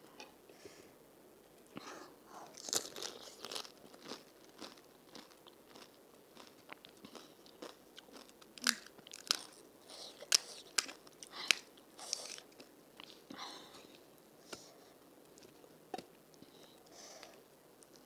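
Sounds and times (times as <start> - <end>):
crunching and chewing crisp shells: 2.4 - 14.1.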